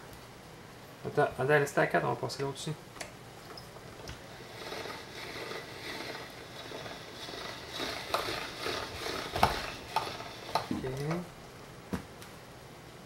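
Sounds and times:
pasta machine crank and rollers: 0:04.2 - 0:11.2.

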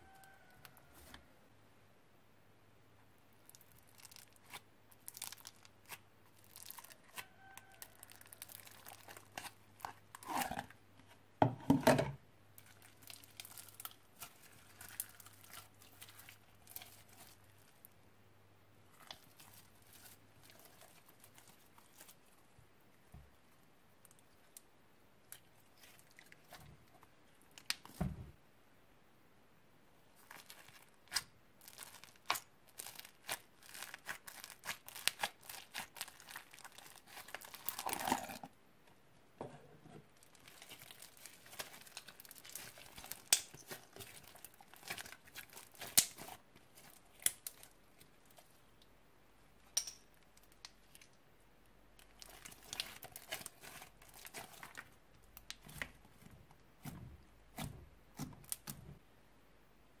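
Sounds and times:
slime popping and crackling: 0:03.4 - 0:10.6, 0:30.2 - 0:38.4, 0:40.2 - 0:48.5, 0:52.0 - 0:58.9.

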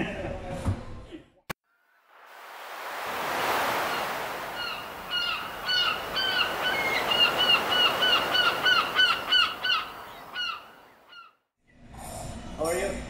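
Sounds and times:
birds calling: 0:01.7 - 0:11.4.

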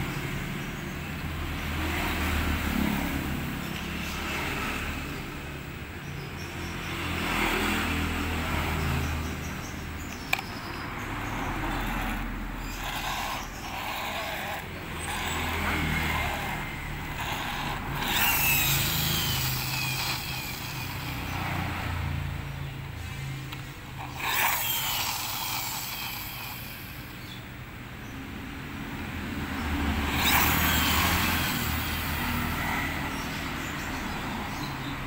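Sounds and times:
plastic toy car scraping: 0:10.2 - 0:22.0, 0:23.5 - 0:27.2, 0:29.8 - 0:33.2.

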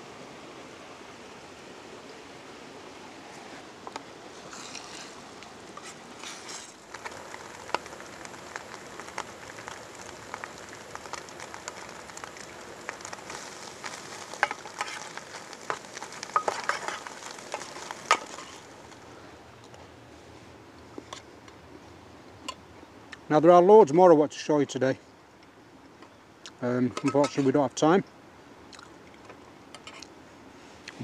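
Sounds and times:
omelette sizzling in a metal tin: 0:04.4 - 0:19.0.

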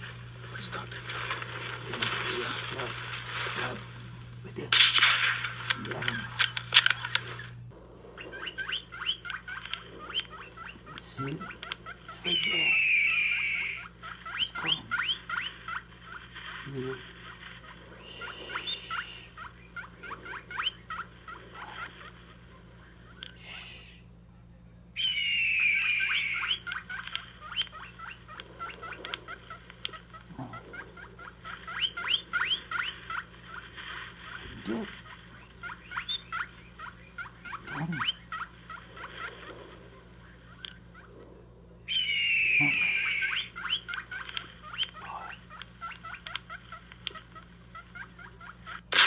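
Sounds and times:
coyote yipping: 0:04.5 - 0:24.0, 0:25.0 - 0:49.0
coyote howling: 0:05.3 - 0:16.2, 0:25.0 - 0:33.7, 0:34.3 - 0:46.4.

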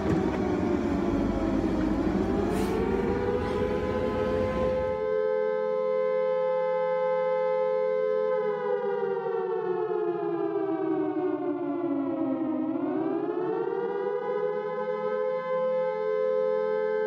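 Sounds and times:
steady low drone: 0:00.0 - 0:05.1
air-raid siren wailing: 0:00.0 - 0:17.0.

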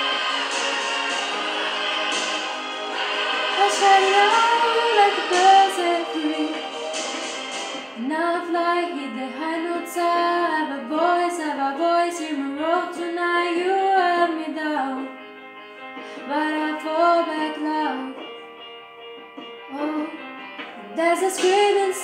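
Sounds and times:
quiet backing music: 0:00.0 - 0:22.0
woman singing pop ballad: 0:03.1 - 0:06.8, 0:08.0 - 0:15.3, 0:16.0 - 0:18.4, 0:19.6 - 0:22.0.

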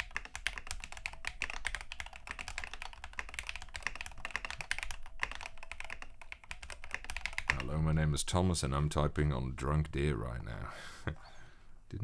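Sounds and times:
fast keyboard typing: 0:00.0 - 0:07.8.

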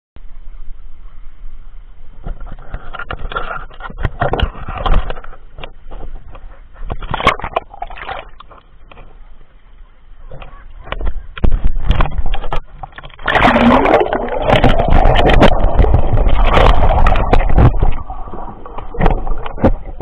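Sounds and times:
hand knocking and scraping camera: 0:02.3 - 0:07.7, 0:14.5 - 0:18.1
water splashing and bubbling: 0:07.0 - 0:08.6, 0:11.7 - 0:20.0.

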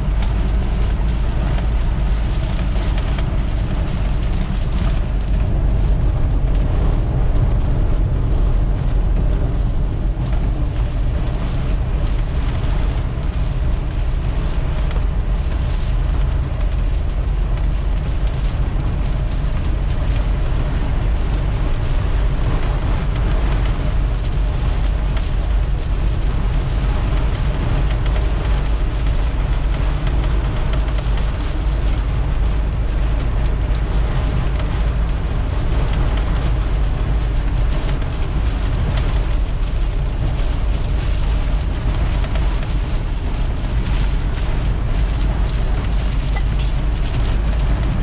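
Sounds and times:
road and engine rumble in cabin: 0:00.0 - 0:48.0.

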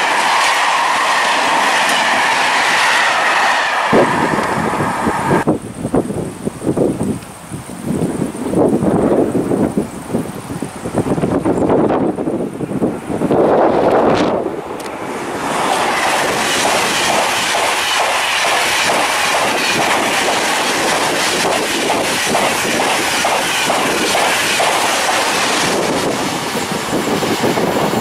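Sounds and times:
train wheels clattering on track: 0:00.0 - 0:05.5, 0:13.9 - 0:28.0
high-speed train passing: 0:00.0 - 0:07.1, 0:08.0 - 0:28.0.

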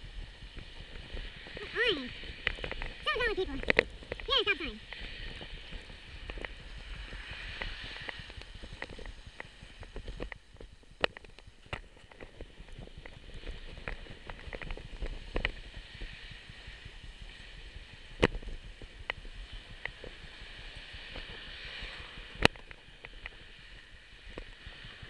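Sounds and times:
wind and road noise rumble: 0:00.0 - 0:25.0.

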